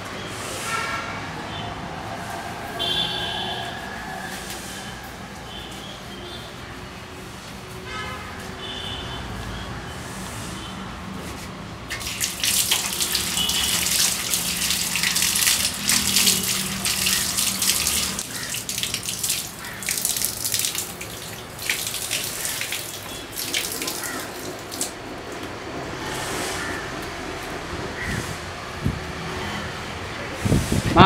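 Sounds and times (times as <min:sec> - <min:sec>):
tap water running and splashing: 0:11.9 - 0:25.5.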